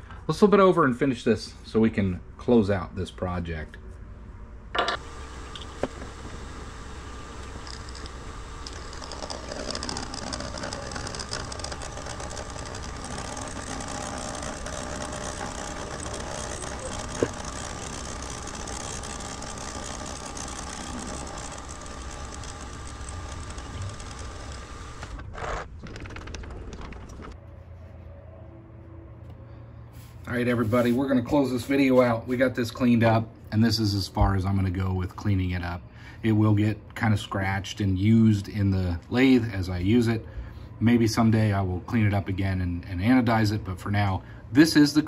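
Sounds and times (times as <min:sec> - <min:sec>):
milling machine cutting metal: 0:05.0 - 0:25.3.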